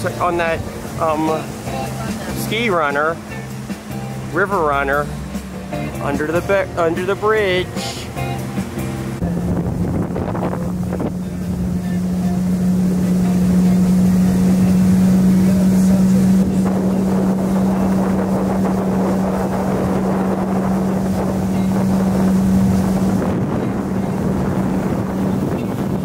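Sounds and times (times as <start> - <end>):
small boat motor humming: 0.0 - 26.0
wind noise on microphone: 7.6 - 26.0.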